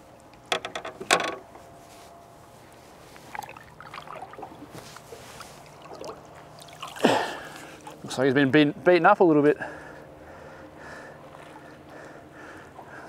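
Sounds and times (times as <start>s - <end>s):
fish splashing at water surface: 3.3s - 8.0s.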